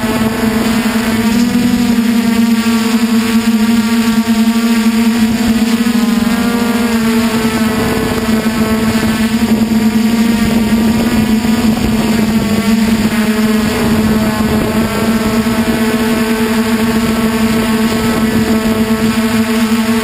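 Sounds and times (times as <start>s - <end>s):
drone motors buzzing: 0.0s - 20.0s
rushing air noise: 7.6s - 19.0s.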